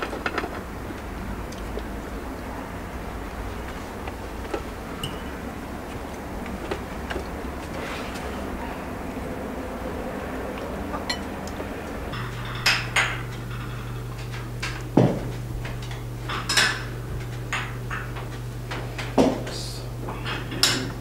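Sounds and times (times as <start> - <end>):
steady low hum: 0.0 - 21.0
dishes and cutlery clinking: 11.0 - 11.4, 20.2 - 21.0.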